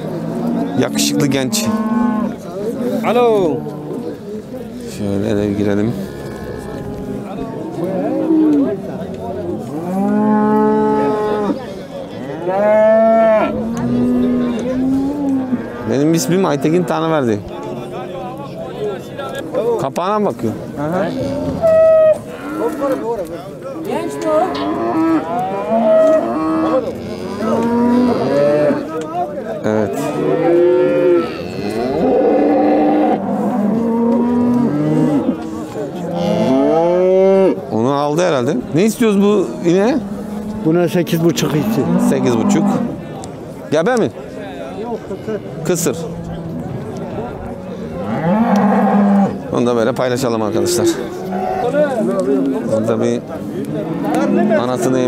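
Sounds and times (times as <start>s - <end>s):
cattle mooing: 0.0s - 4.2s, 5.9s - 8.8s, 9.6s - 11.6s, 12.2s - 16.2s, 20.9s - 23.1s, 23.9s - 28.9s, 29.8s - 37.6s, 39.3s - 43.0s, 48.0s - 49.5s, 50.5s - 52.8s, 53.7s - 55.0s.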